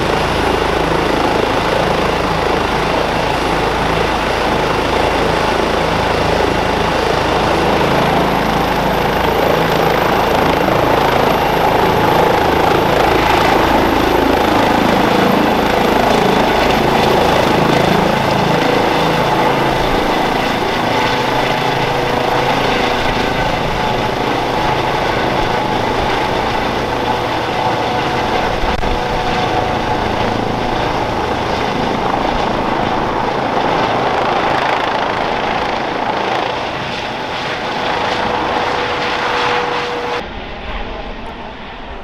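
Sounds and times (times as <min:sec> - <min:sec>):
helicopter rotor blades: 0:00.0 - 0:42.0
turbine whine: 0:35.6 - 0:42.0.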